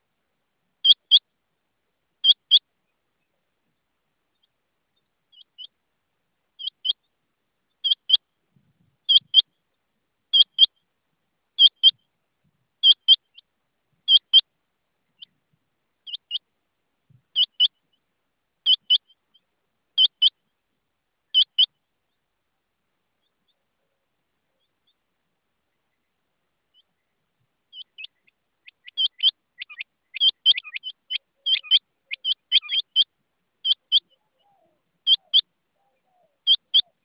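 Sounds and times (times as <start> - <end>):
quail calling sharp double notes: 0.8 - 1.2, 2.2 - 2.6, 9.1 - 9.5, 10.3 - 10.8, 11.6 - 12.0, 12.8 - 13.4, 18.6 - 19.2, 20.0 - 20.4, 21.3 - 21.8, 27.7 - 37.0.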